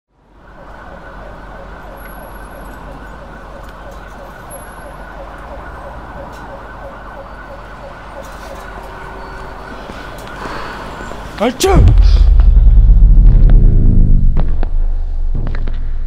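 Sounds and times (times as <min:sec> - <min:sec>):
city street noise: 0:00.1 - 0:12.6
emergency siren yelping: 0:00.3 - 0:10.4.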